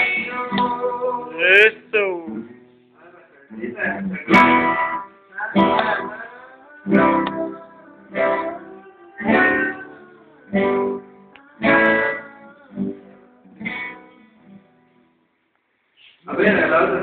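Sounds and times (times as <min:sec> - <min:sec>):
acoustic guitar chords strummed: 0:04.1 - 0:14.9.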